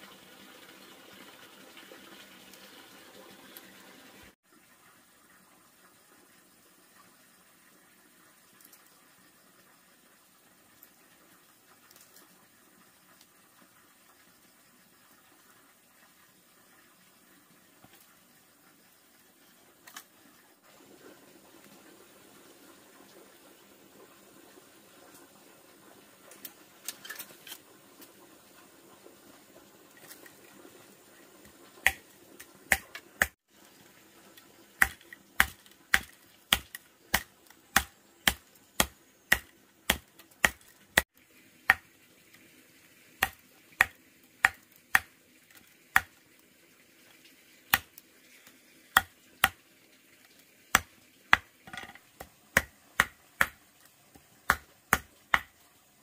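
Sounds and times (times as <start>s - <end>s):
machete chopping bamboo: 32.7s - 33.4s, 34.8s - 40.7s, 41.7s - 41.9s, 43.2s - 45.1s, 49.0s - 49.6s, 50.8s - 51.5s, 52.2s - 53.6s, 54.4s - 55.5s.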